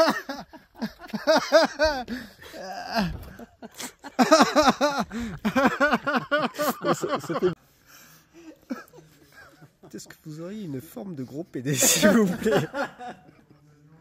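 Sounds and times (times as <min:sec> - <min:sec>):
person laughing heartily: 0:00.0 - 0:07.6, 0:08.4 - 0:09.9, 0:11.8 - 0:13.6.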